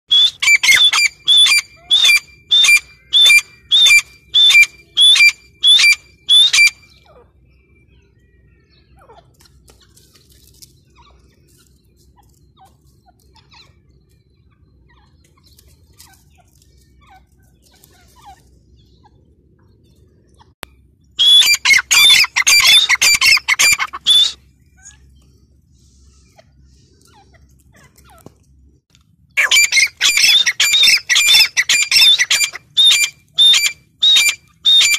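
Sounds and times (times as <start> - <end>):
francolin calling: 0.1 - 7.6, 21.2 - 25.2, 29.4 - 34.9.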